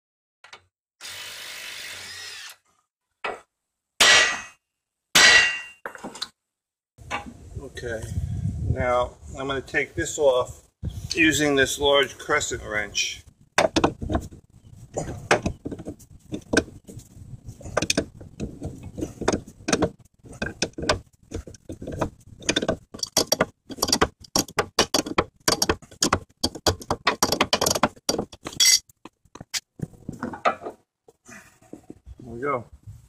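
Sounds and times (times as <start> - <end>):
wrench clinking on metal: 28.5 - 28.8.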